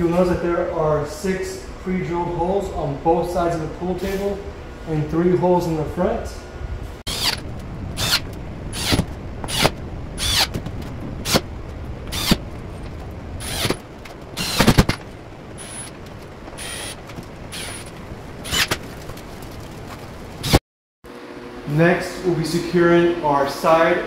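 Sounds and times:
cordless drill whirring: 7.1s - 10.6s, 12.1s - 12.4s, 13.4s - 13.8s, 14.4s - 14.8s, 15.6s - 15.9s, 16.6s - 18.7s.

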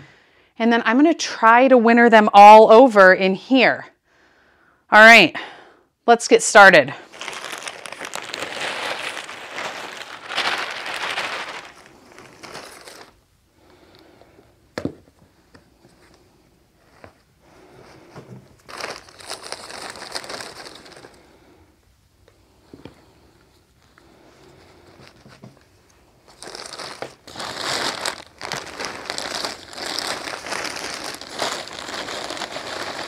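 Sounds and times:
plastic bag crinkling: 7.0s - 13.3s, 18.6s - 21.3s, 26.1s - 33.0s.

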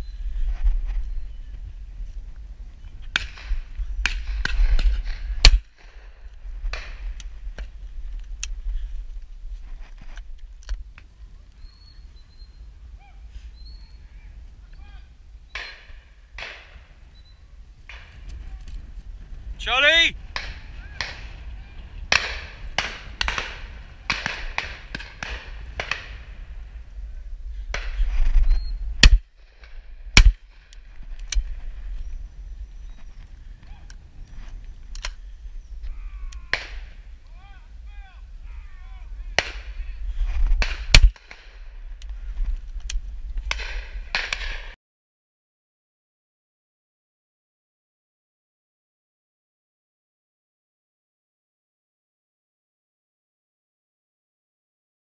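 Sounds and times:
distant shotgun shots: 3.1s - 7.0s, 22.1s - 26.4s, 29.0s - 30.7s, 36.5s - 37.0s, 39.4s - 39.8s, 40.6s - 41.6s, 43.5s - 44.8s
loud close shotgun shot: 4.1s - 5.7s, 29.0s - 29.2s, 30.2s - 30.4s, 40.6s - 41.5s
loud close shotgun shots: 29.0s - 29.2s, 30.2s - 30.4s, 40.6s - 41.5s.

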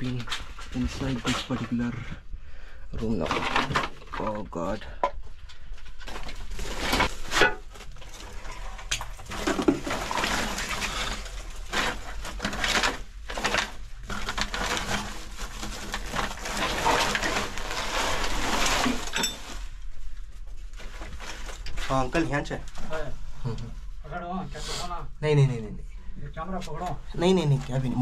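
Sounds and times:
rustling and scraping of sacking: 6.0s - 23.5s.

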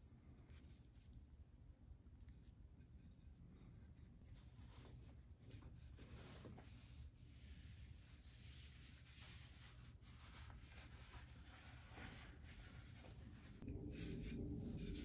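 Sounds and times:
low room noise: 0.0s - 15.0s
cloth rubbing wooden spoon: 3.2s - 15.0s
low rumble: 13.2s - 15.0s.

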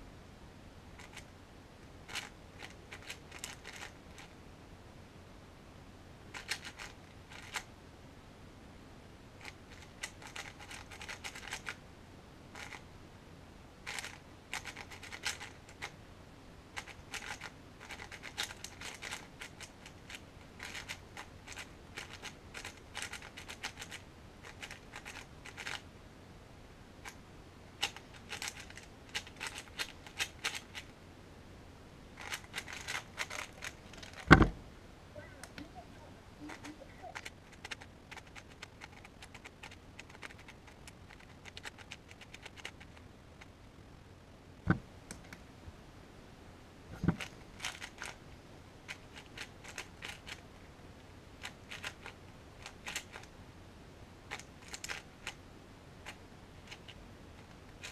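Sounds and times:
puzzle cube clicking: 2.1s - 4.3s, 6.4s - 7.6s, 9.4s - 11.8s, 13.9s - 15.9s, 16.8s - 25.8s, 27.8s - 30.9s, 32.2s - 34.5s, 36.5s - 43.0s, 47.1s - 48.2s, 48.9s - 50.4s, 51.4s - 53.3s, 54.3s - 55.4s.

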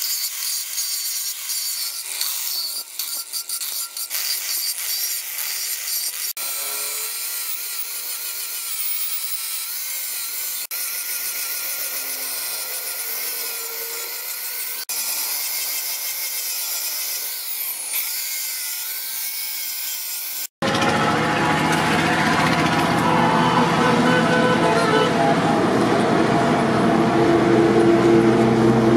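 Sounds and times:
angle grinder grinding steel: 0.0s - 25.5s
low steady roar: 20.6s - 28.9s.

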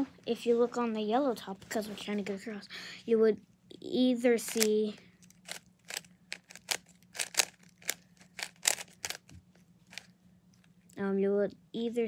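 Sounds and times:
puzzle cube clicking: 4.4s - 9.3s.

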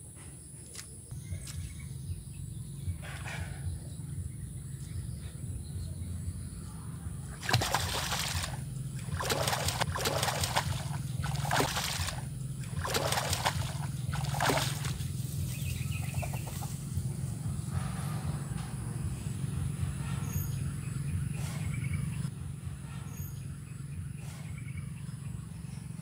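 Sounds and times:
fish splashing in water: 7.3s - 16.6s.

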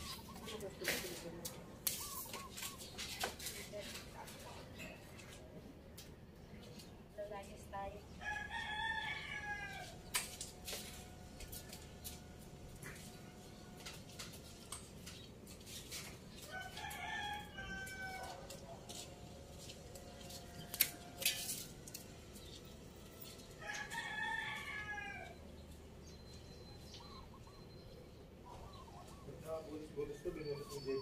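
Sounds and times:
rooster crowing: 8.2s - 10.0s, 16.5s - 18.6s, 23.6s - 25.4s.

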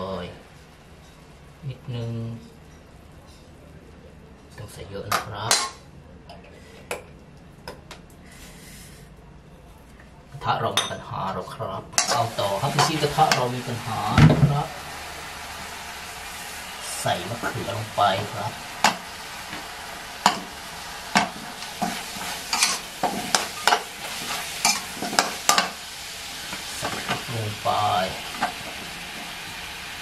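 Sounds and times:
chicken sizzling: 12.0s - 30.0s
metal spatula scraping a wok: 21.3s - 25.8s.

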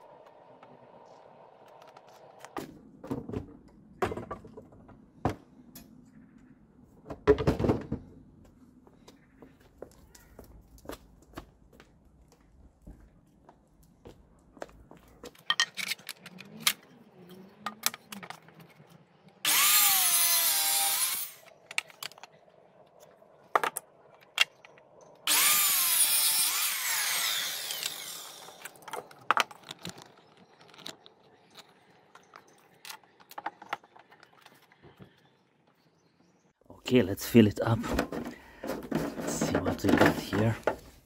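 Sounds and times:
knocks and clatter handling wood: 2.0s - 5.6s, 7.0s - 8.3s, 23.5s - 24.9s, 28.6s - 35.2s, 37.6s - 41.0s
mitre saw cutting wood: 19.4s - 21.5s, 25.3s - 28.8s.

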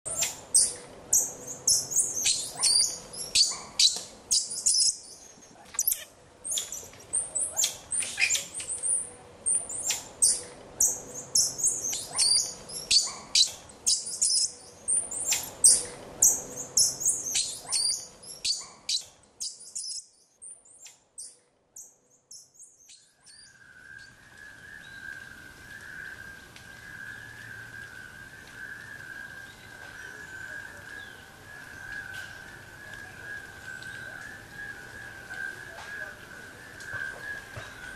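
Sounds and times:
birds chirping: 0.1s - 37.9s
faint hiss: 22.5s - 37.9s.

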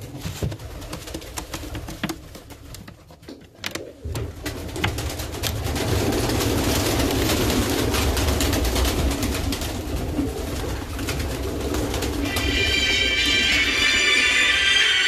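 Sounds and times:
pigeons cooing: 0.8s - 15.0s
music: 12.3s - 15.0s.

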